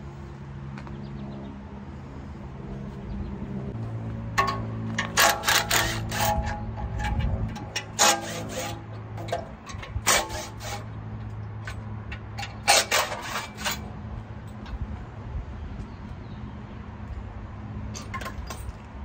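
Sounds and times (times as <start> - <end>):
metal scraping and rubbing: 4.3 - 14.9.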